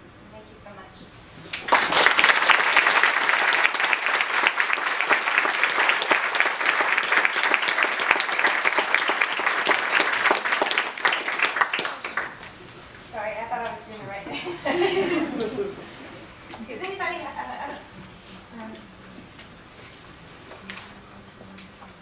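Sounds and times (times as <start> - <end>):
audience applauding: 1.5 - 12.5.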